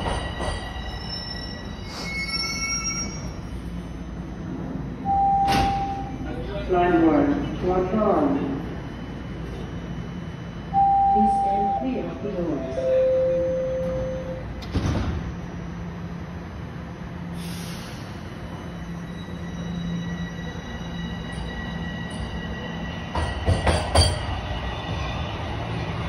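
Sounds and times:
train thump: 0:00.0 - 0:00.8, 0:05.4 - 0:06.0, 0:14.6 - 0:15.3, 0:23.1 - 0:24.3
train wheel clacks: 0:00.0 - 0:00.8, 0:23.1 - 0:24.4
subway train running with whine: 0:00.0 - 0:26.0.

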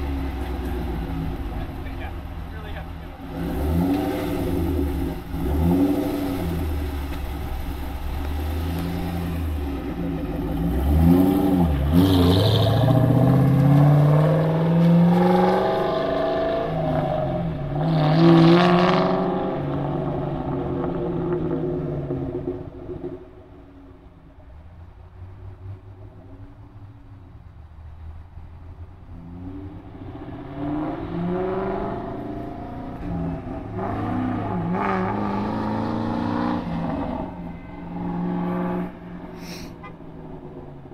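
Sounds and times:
car accelerating away: 0:00.0 - 0:23.5, 0:29.0 - 0:39.4
car engine revving: 0:00.0 - 0:23.6, 0:29.1 - 0:40.9.

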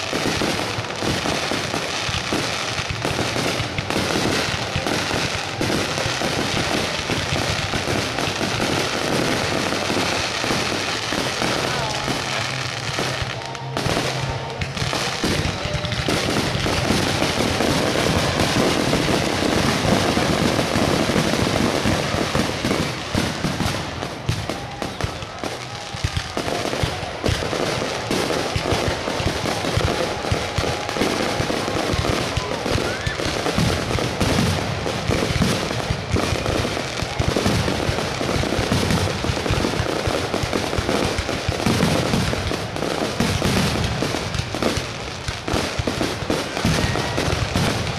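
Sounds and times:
fireworks bursting: 0:00.0 - 0:47.9.

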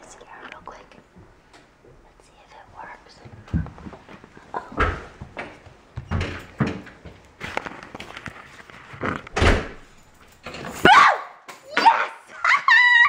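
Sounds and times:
door thumping and banging: 0:04.7 - 0:07.0, 0:09.3 - 0:10.9.

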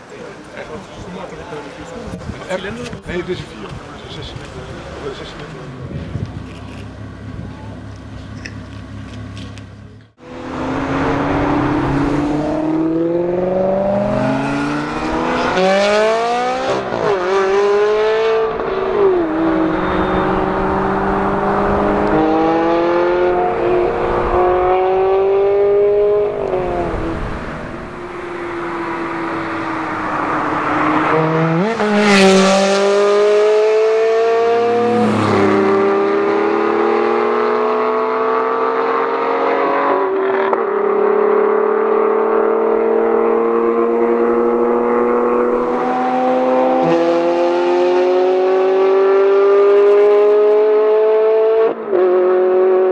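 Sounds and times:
car passing by: 0:10.3 - 0:39.9
car engine accelerating through gears: 0:10.3 - 0:52.9.

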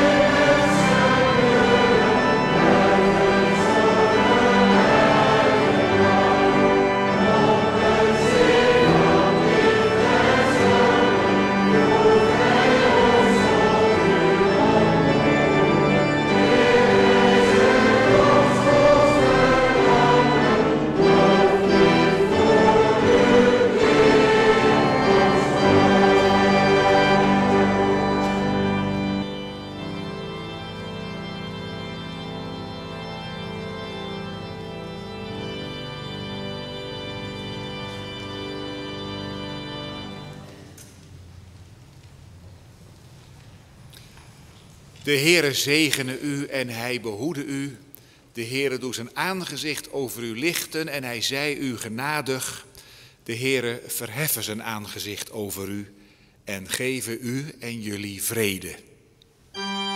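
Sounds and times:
congregation and choir singing hymn: 0:00.0 - 0:40.8
organ chords: 0:00.0 - 0:42.8, 0:59.4 - 0:59.9.

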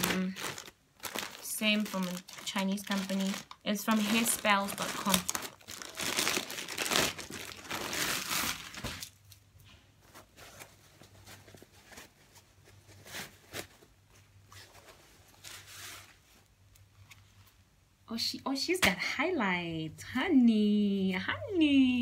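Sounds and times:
packaging crinkling and tearing: 0:00.0 - 0:09.4
faint rustles and clicks: 0:08.5 - 0:17.6.

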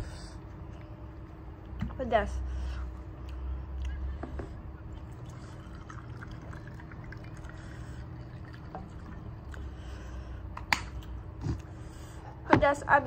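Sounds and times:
low steady hum: 0:00.0 - 0:13.0
sipping and swallowing water: 0:04.9 - 0:09.8.

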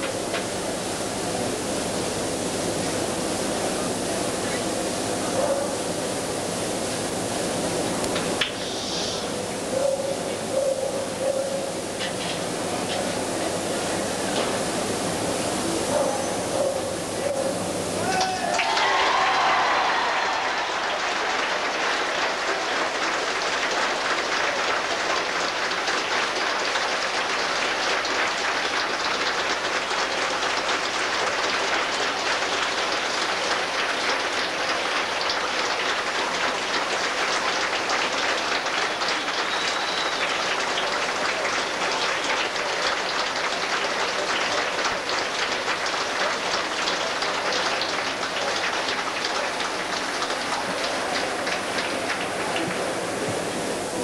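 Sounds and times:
crowd applauding: 0:18.0 - 0:54.0.

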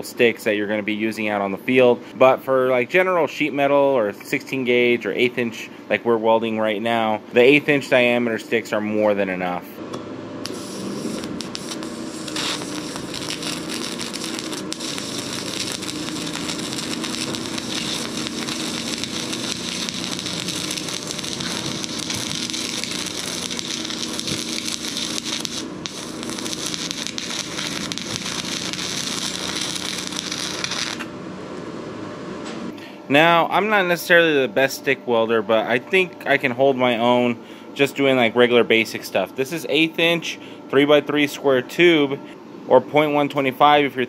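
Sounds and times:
welding arc crackling: 0:10.4 - 0:31.1.

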